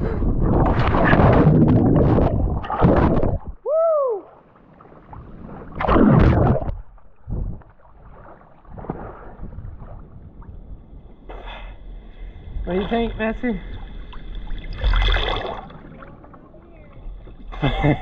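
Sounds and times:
underwater churning and bubbling: 0.0 - 3.6, 4.3 - 18.0
person crying out: 3.6 - 4.2
water lapping: 4.2 - 18.0
loud water splash: 5.5 - 6.8, 14.5 - 16.1.

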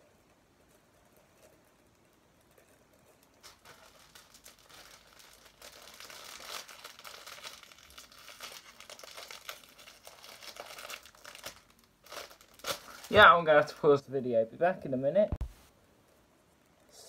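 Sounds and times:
packaging crinkling and tearing: 3.4 - 13.8.

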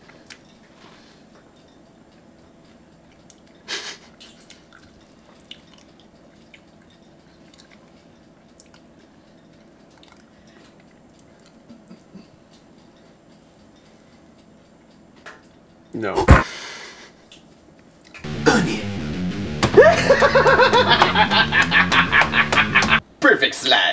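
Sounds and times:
person chewing: 4.2 - 8.9, 9.8 - 11.9.

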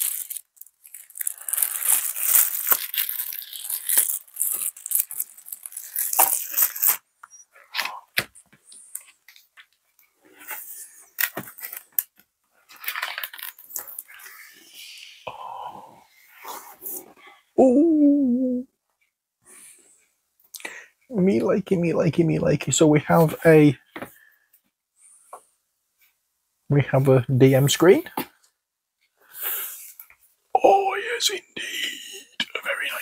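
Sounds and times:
plastic packaging crinkling: 0.0 - 7.0, 10.4 - 14.5.

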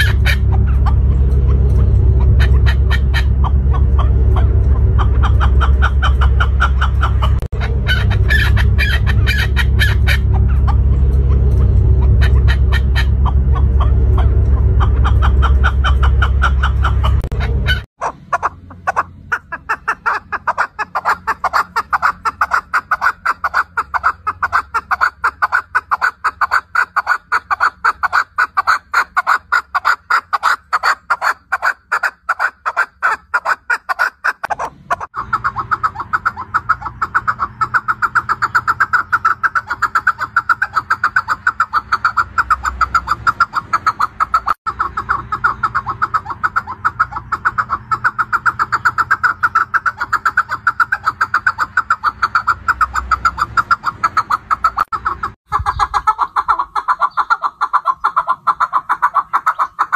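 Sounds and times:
loud low rumble: 0.0 - 25.8, 34.4 - 56.0
partridge clucking calls: 0.0 - 59.9.

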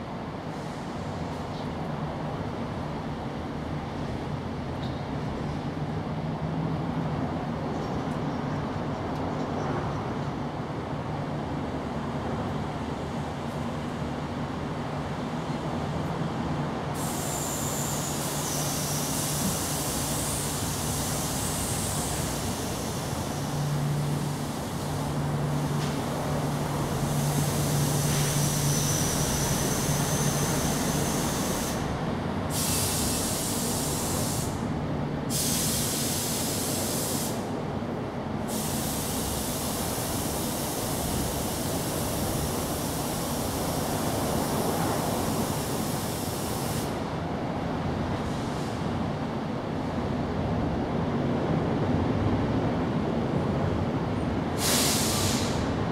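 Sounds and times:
high hiss: 16.9 - 34.6, 35.3 - 37.5, 38.5 - 47.0, 54.6 - 55.7.

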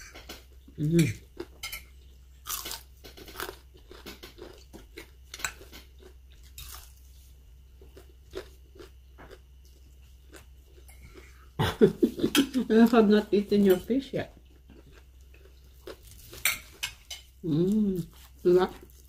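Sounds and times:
person chewing crispy fish: 0.0 - 12.2, 14.4 - 19.0.

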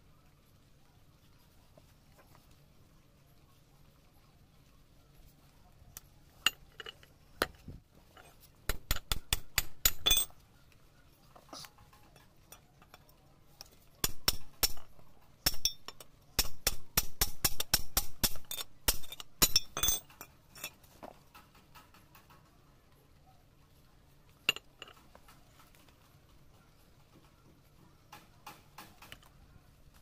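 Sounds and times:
hammer striking steel pipe: 14.0 - 20.0.

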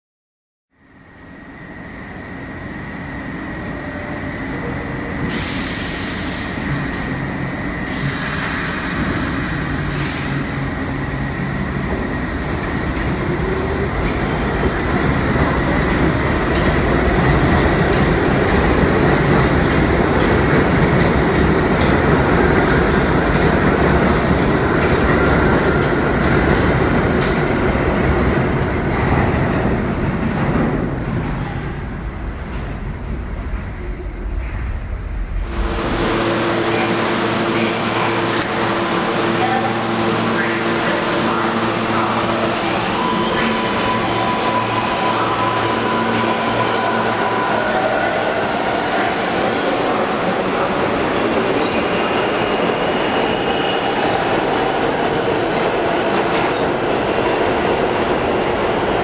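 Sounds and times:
air hissing: 5.3 - 7.2, 7.8 - 10.9
train wheels rumbling on rails: 6.1 - 59.0.

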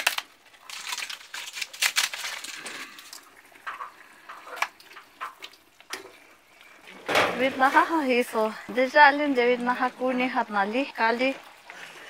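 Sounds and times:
fried tortilla pieces crackling: 0.0 - 5.9.

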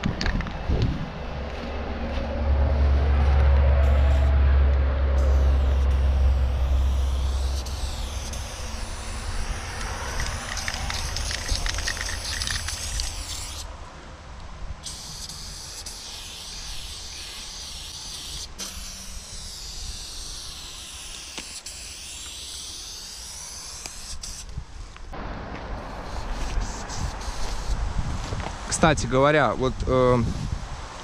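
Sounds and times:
low rumble: 0.0 - 14.8
spray paint can hissing: 5.2 - 13.7, 14.8 - 24.6, 25.8 - 27.8.

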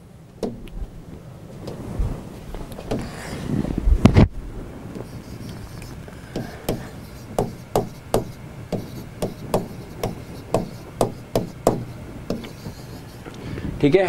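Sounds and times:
stylus tapping on whiteboard: 6.3 - 13.1.

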